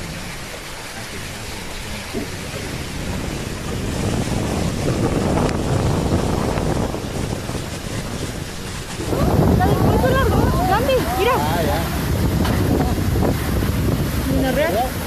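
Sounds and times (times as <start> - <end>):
heavy rain hiss: 0.0 - 15.0
storm wind buffeting microphone: 0.0 - 15.0.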